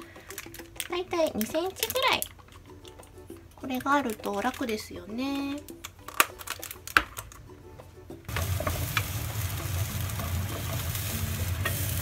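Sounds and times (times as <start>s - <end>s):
onions sizzling in a frying pan: 8.3s - 12.0s.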